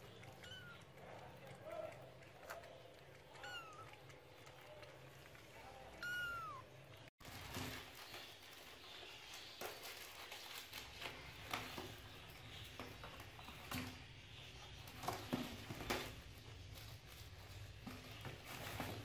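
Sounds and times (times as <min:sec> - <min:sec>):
kittens crinkling foil liner: 0:07.2 - 0:19.0.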